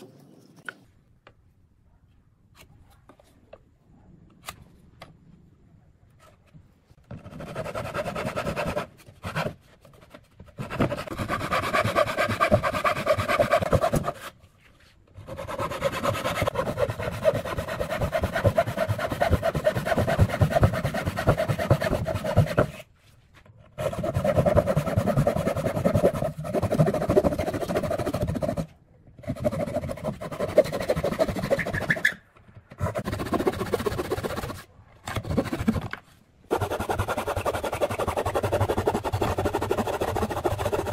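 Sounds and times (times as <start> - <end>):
hand saw cutting wood: 10.6 - 14.3, 15.2 - 22.8, 23.8 - 32.2, 32.8 - 35.9, 36.5 - 40.9.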